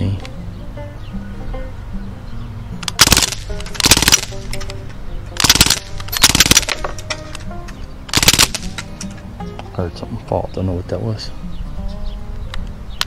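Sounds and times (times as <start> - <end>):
bb rifle full-auto bursts: 2.9 - 4.5, 5.4 - 7.0, 8.1 - 8.8.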